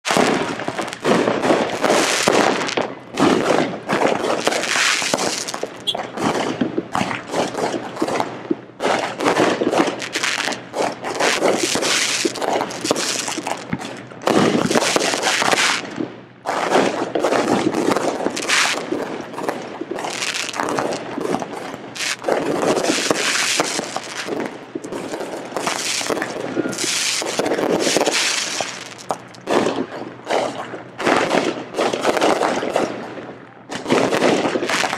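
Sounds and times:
fireworks bangs: 0:00.0 - 0:34.9
fireworks crackling and popping: 0:00.0 - 0:34.9.

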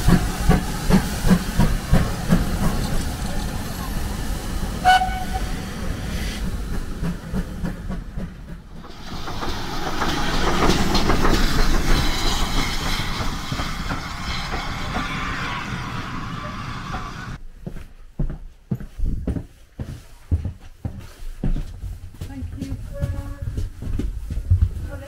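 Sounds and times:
steam hissing: 0:00.0 - 0:17.4
low rumble of train: 0:00.0 - 0:25.0.

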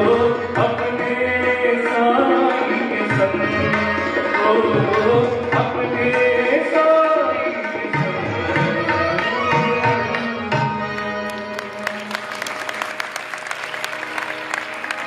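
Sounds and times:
audience applause: 0:11.3 - 0:15.0.

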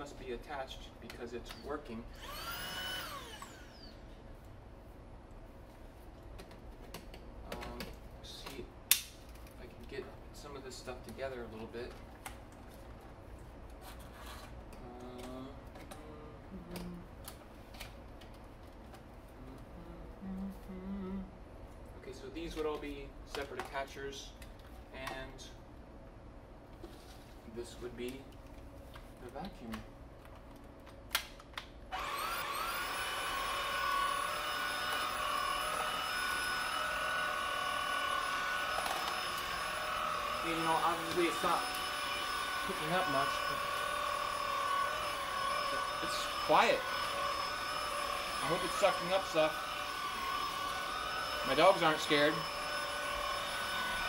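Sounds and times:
vacuum cleaner motor whine: 0:02.1 - 0:04.0, 0:31.9 - 0:54.0.

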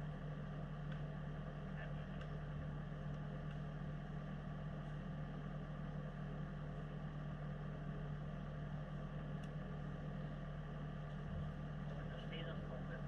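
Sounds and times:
engine running steadily: 0:00.0 - 0:13.0.

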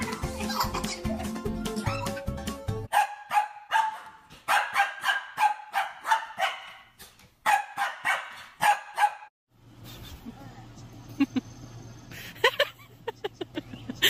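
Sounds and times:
small dog yapping: 0:02.9 - 0:06.8.

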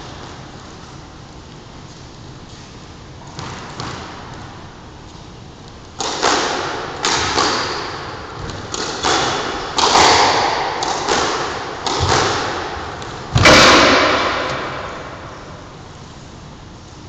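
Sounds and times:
squash ball smacks echoing: 0:03.3 - 0:04.3, 0:06.0 - 0:15.8.

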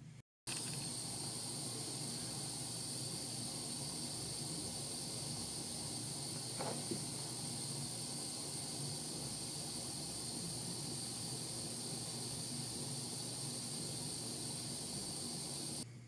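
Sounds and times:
gas torch hissing: 0:00.5 - 0:15.8.

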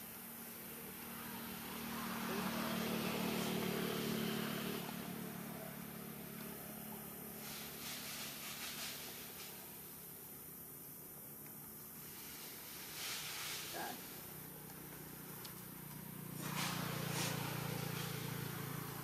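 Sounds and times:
vehicle engine passing: 0:00.0 - 0:09.9, 0:13.4 - 0:19.0
soft rustles: 0:07.4 - 0:09.9, 0:12.0 - 0:15.7.

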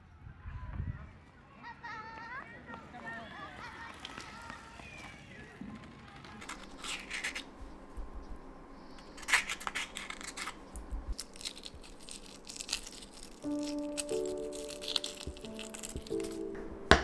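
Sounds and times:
eggshell crackling as peeled: 0:05.8 - 0:17.0
spoon scraping avocado flesh: 0:08.9 - 0:16.7.

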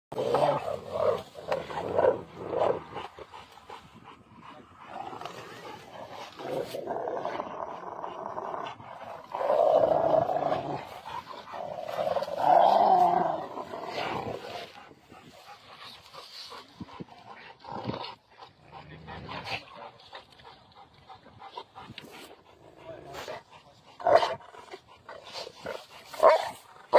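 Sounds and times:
dogs growling: 0:00.1 - 0:26.9.

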